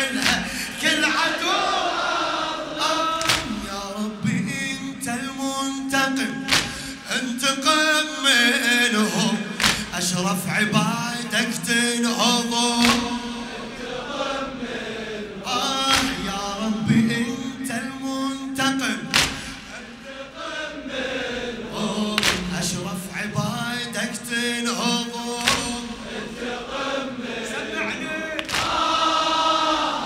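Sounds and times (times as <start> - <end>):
man chanting unaccompanied: 0.0 - 1.8, 2.7 - 13.7, 15.4 - 20.0, 21.7 - 26.3, 27.4 - 28.5.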